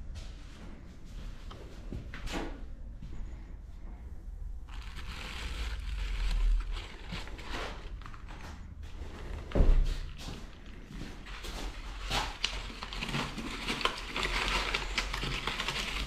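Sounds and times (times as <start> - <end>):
plastic and paper crinkling: 4.7 - 16.0.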